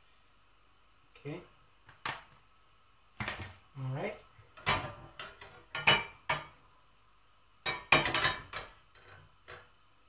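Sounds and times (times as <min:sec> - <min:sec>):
utensils clinking on metal pan: 0:04.6 - 0:06.6, 0:07.6 - 0:09.6.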